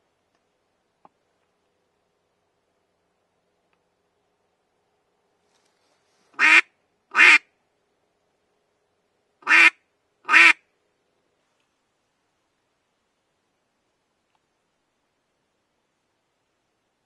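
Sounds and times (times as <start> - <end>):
duck call quacks: 6.4 - 7.5, 9.4 - 10.6.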